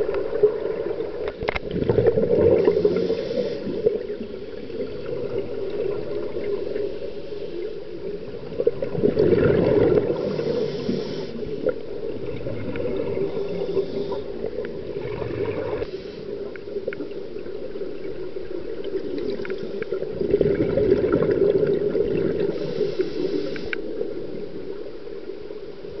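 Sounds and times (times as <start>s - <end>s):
gurgling exhaled bubbles: 0.0s - 6.9s, 8.2s - 15.9s, 18.6s - 22.8s
steady watery rumble: 0.0s - 26.0s
regulator hiss: 2.6s - 4.2s, 10.2s - 11.7s, 13.2s - 14.6s, 15.8s - 16.8s, 22.5s - 24.0s.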